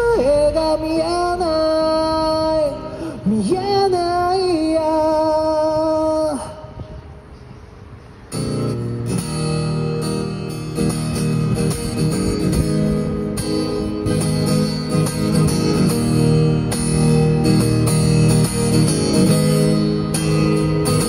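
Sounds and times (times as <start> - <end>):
acoustic guitar playing: 8.3 - 21.0.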